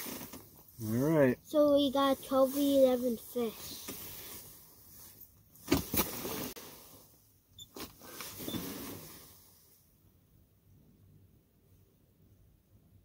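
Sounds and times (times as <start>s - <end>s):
scraping rustle: 7.7s - 9.6s.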